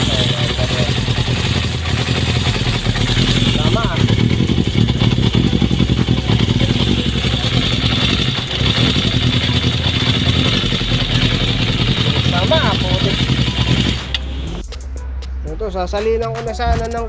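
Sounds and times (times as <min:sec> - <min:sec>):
motorcycle engine running: 0:00.0 - 0:14.7.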